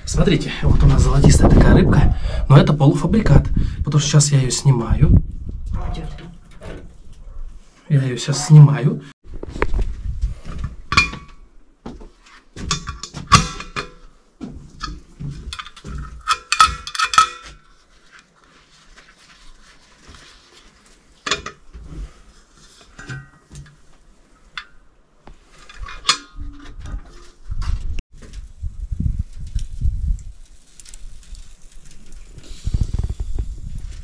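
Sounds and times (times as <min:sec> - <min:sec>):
metallic clinks and clanks: 0:14.8 - 0:17.6, 0:25.6 - 0:27.3.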